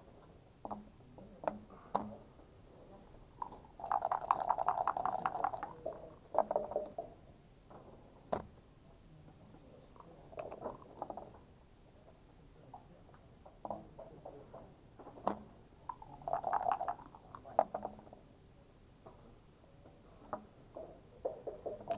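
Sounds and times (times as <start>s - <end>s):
dice rattling in a cup: 3.4s - 7.0s, 15.9s - 17.9s
dice and checkers clacking: 21.3s - 21.9s.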